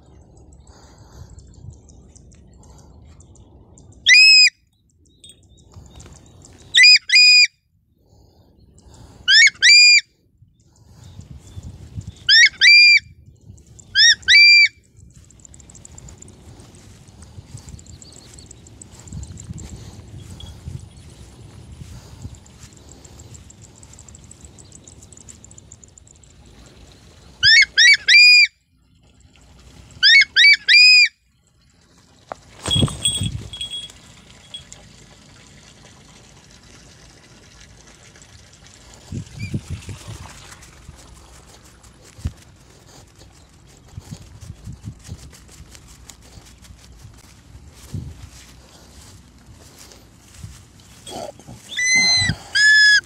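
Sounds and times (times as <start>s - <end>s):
bird of prey calling: 4.0s - 4.5s, 5.8s - 7.5s, 9.3s - 10.0s, 12.0s - 25.8s, 27.4s - 28.5s, 30.0s - 31.2s, 51.0s - 53.0s
eagle screaming: 9.3s - 10.0s, 12.3s - 13.0s, 14.0s - 14.7s, 27.4s - 28.5s, 30.0s - 31.1s, 51.1s - 53.0s.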